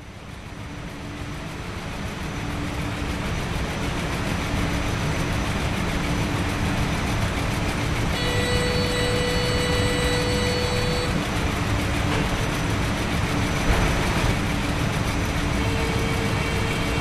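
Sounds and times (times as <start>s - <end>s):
printing press machinery rumble: 0.0s - 17.0s.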